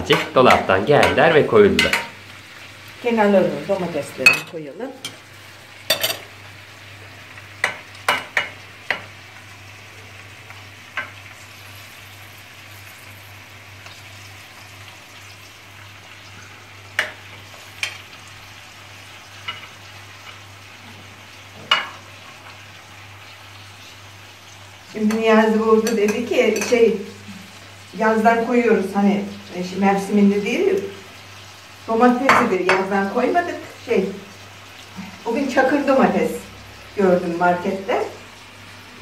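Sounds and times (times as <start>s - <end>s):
meat and vegetables sizzling in pan: 0.0s - 39.0s
utensil clinking on plate and pan: 1.8s - 2.2s, 4.2s - 5.2s, 5.9s - 6.3s.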